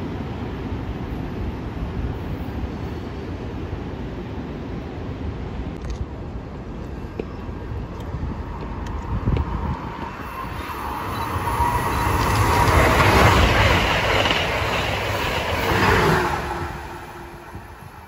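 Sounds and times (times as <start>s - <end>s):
train passing at speed: 0.0s - 18.0s
steel wheels on rail: 6.8s - 18.0s.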